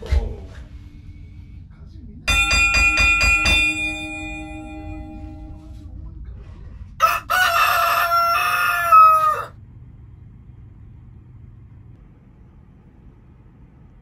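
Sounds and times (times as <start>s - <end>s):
rooster crowing: 7.0s - 9.6s.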